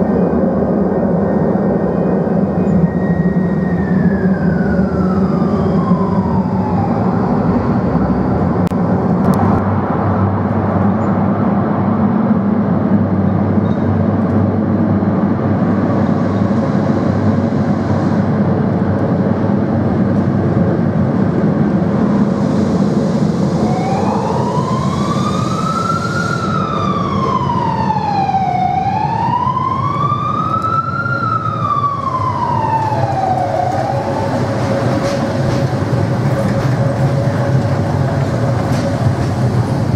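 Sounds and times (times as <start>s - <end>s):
tram rumbling through tunnel: 0.0s - 39.9s
siren wailing: 2.6s - 8.6s, 23.5s - 35.0s.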